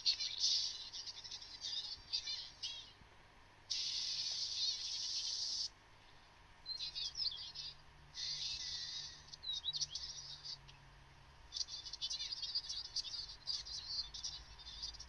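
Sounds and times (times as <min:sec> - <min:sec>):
squeaky chirping sounds: 0:00.0 - 0:03.0, 0:03.7 - 0:05.7, 0:06.6 - 0:10.8, 0:11.5 - 0:15.0
cartoon hiss: 0:03.7 - 0:05.7.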